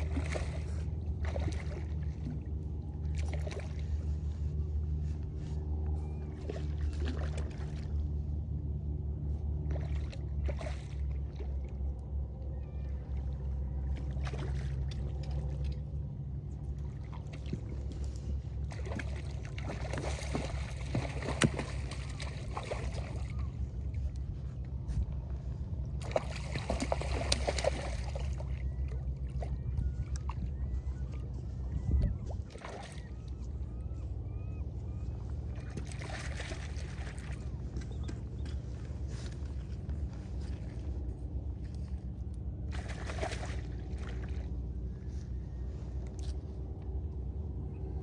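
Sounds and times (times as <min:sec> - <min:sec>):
steady low hum: 0:00.0 - 0:48.0
fish splashing at surface: 0:18.7 - 0:23.4, 0:26.0 - 0:28.6, 0:35.5 - 0:37.4, 0:42.7 - 0:44.4.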